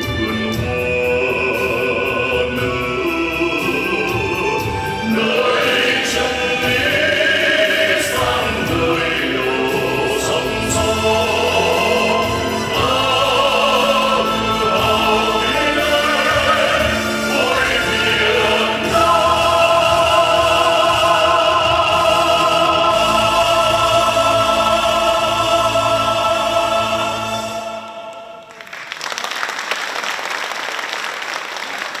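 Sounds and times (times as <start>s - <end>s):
choir singing: 0.0s - 28.7s
backing music: 0.0s - 29.0s
audience applause: 28.2s - 32.0s.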